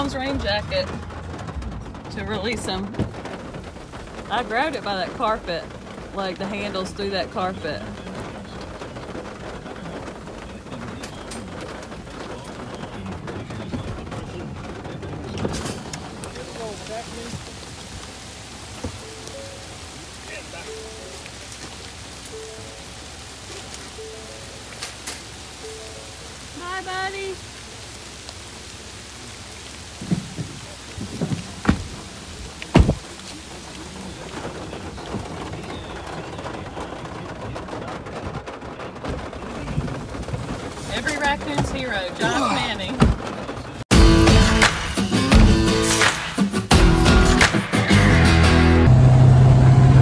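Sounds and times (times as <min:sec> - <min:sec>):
rain falling: 0:00.0 - 0:50.0
dull low thumps: 0:29.6 - 0:33.2.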